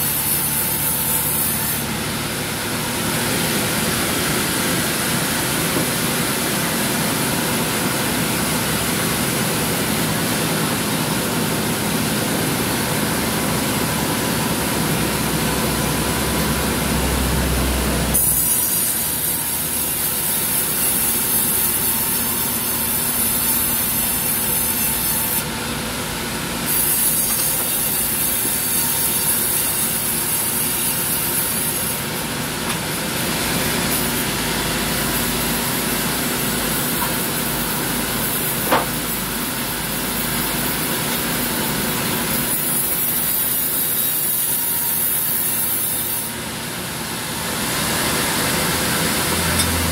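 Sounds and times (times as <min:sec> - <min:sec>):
band saw running: 0:00.0 - 0:49.9
band saw cutting wood hiss: 0:26.6 - 0:32.2.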